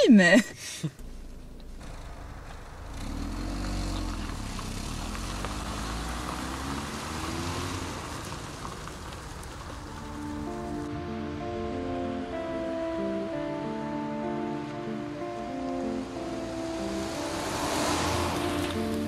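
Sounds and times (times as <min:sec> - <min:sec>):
car engine running: 0:00.9 - 0:19.0
tyre noise on dirt: 0:01.0 - 0:10.8.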